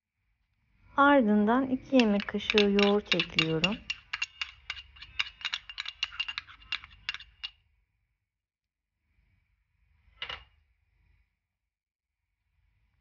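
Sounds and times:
spoon clinking on ceramic bowl: 0:02.0 - 0:07.5.

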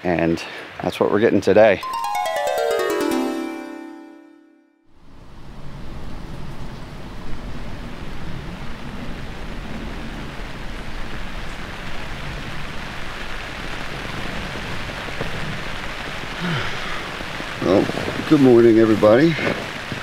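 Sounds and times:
rain falling on a tent: 0:05.3 - 0:20.0.

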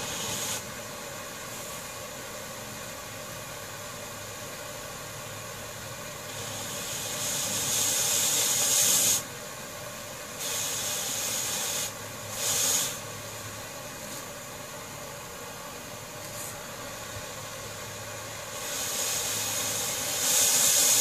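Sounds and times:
compressed air hissing: 0:00.0 - 0:02.1, 0:06.0 - 0:13.3, 0:18.4 - 0:21.0.

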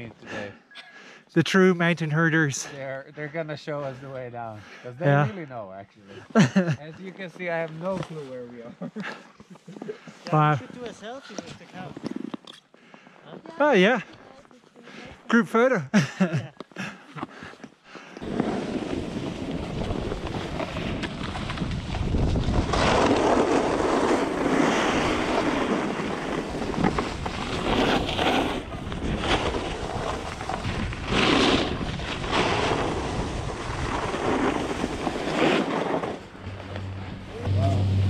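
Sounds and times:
snowboard scraping over snow: 0:18.2 - 0:38.0
wind rushing over microphone: 0:18.9 - 0:25.4.

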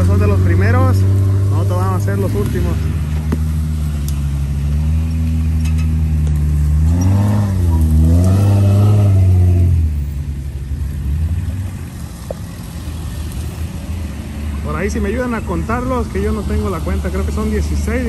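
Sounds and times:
engine revving: 0:00.0 - 0:10.3
off-road vehicle engines running: 0:00.0 - 0:18.0.

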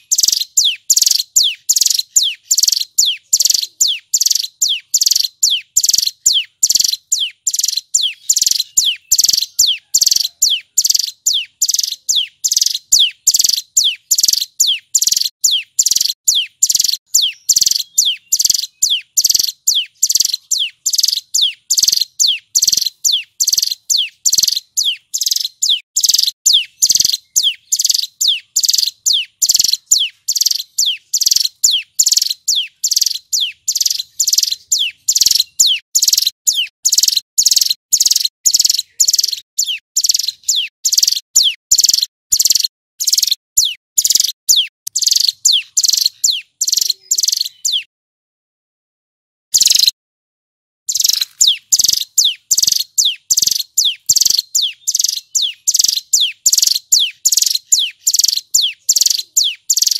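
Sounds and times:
bird singing sharp descending notes: 0:50.9 - 0:59.9.

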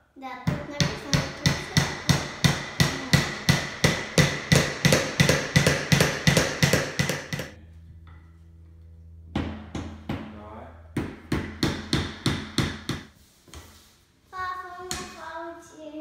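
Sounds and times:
low hum: 0:00.0 - 0:13.4
hammer driving nail into wood: 0:00.8 - 0:07.6, 0:11.0 - 0:13.1.

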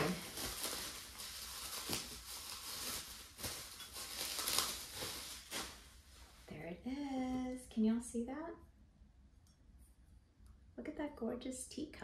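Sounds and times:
bubble wrap crinkling: 0:00.0 - 0:06.6.

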